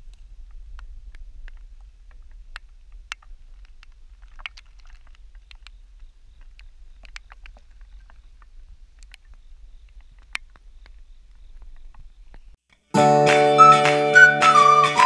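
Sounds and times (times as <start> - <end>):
steady low rumble: 0.0 - 4.5
raindrops plinking on pond: 0.8 - 11.0.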